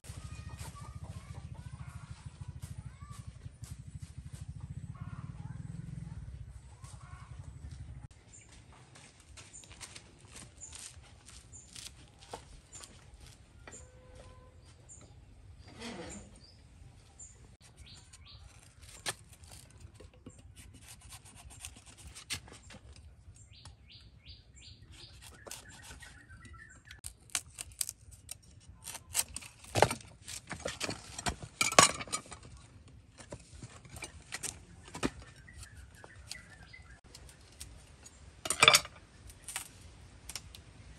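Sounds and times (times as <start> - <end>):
birds chirping: 0.1 - 20.6, 21.4 - 27.2, 32.4 - 40.9
footsteps in slippers: 8.3 - 13.5.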